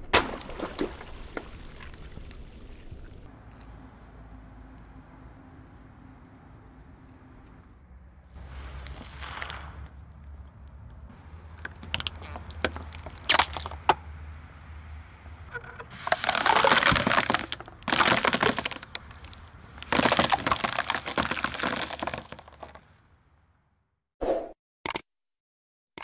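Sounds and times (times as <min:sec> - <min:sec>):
foam block crunching under tyre: 0:08.3 - 0:10.0, 0:11.2 - 0:14.0, 0:15.4 - 0:23.0
sharp cracks and snaps: 0:11.6 - 0:14.0.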